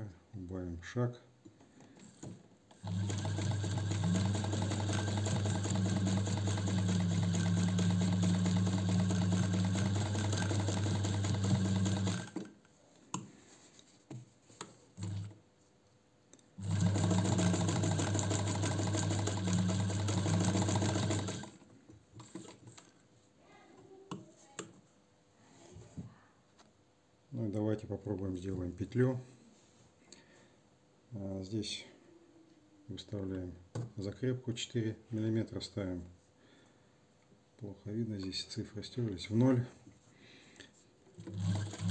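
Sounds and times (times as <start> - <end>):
sewing machine motor humming: 2.2 - 12.5, 16.6 - 21.6, 41.2 - 41.9.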